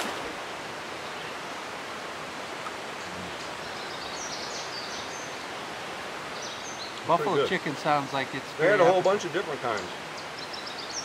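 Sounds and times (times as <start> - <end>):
creek flowing: 0.0 - 11.0.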